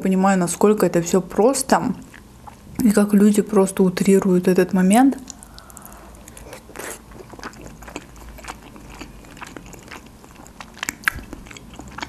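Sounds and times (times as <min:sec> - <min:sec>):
chewing with wet mouth smacks: 0:05.1 - 0:12.0.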